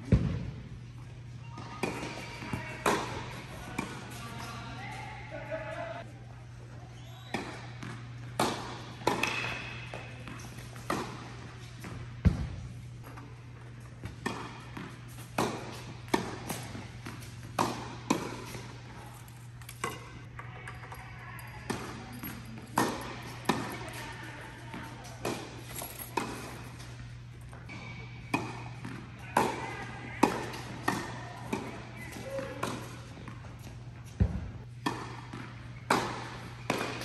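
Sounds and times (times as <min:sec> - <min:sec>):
tennis balls struck by rackets: 0:01.6 - 0:04.4, 0:07.3 - 0:13.0, 0:14.0 - 0:18.9, 0:24.6 - 0:37.0.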